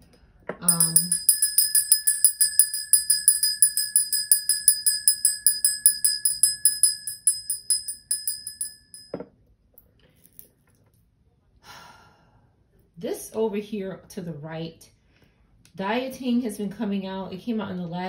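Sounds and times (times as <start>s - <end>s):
small bell rung rapidly: 0.7s - 9.2s.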